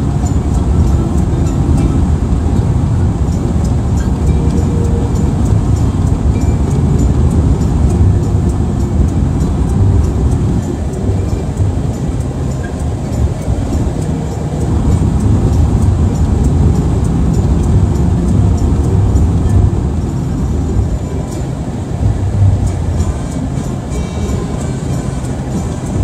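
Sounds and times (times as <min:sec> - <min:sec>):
car road and engine rumble: 0:00.0 - 0:26.0
music with ticking beat: 0:00.0 - 0:26.0.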